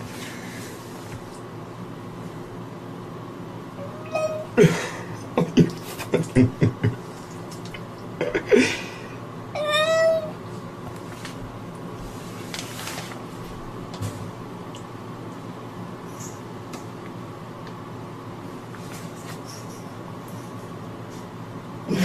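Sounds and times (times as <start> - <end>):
cat meowing: 3.8 - 4.5, 9.6 - 10.4.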